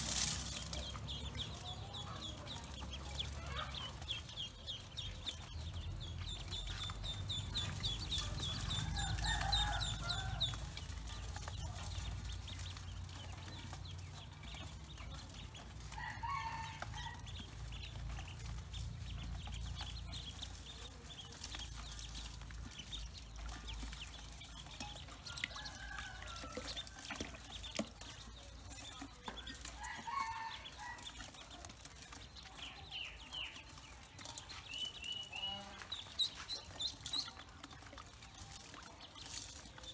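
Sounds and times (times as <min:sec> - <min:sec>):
ducklings peeping: 0:00.0 - 0:39.9.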